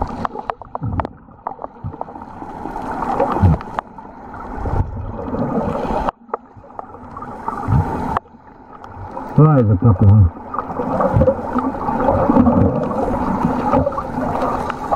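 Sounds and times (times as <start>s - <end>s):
muffled underwater water sloshing: 0.0s - 14.9s
faint clicks: 13.7s - 14.9s.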